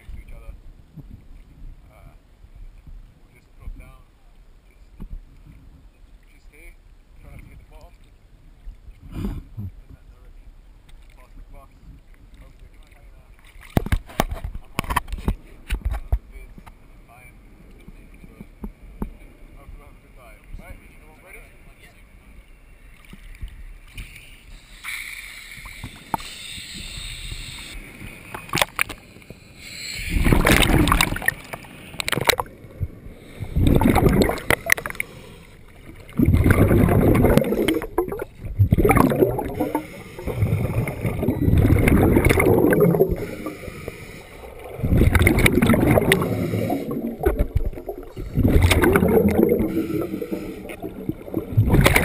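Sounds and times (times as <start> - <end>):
exhaled air bubbling underwater: 29.9 - 52.0.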